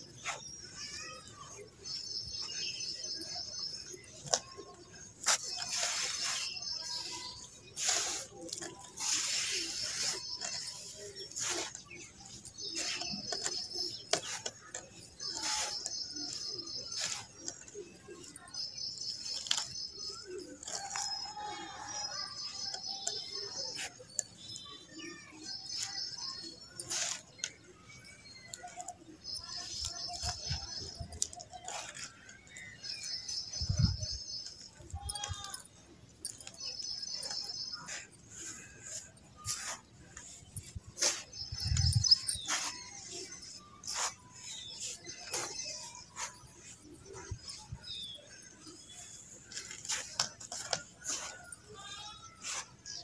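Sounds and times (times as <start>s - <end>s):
birds chirping: 0.0s - 53.0s
soil crunching rustle: 5.2s - 17.6s.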